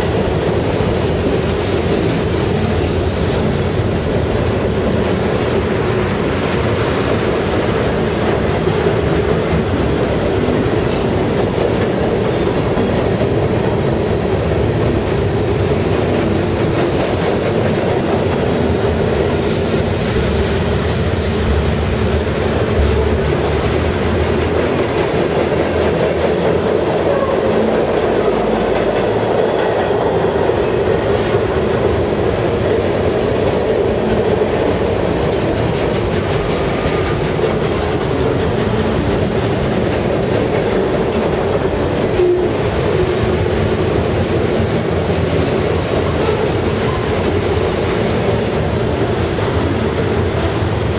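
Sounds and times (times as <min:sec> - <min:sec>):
freight train rolling past: 0:00.0 - 0:50.9
train wheels clacking over joints: 0:00.0 - 0:50.9.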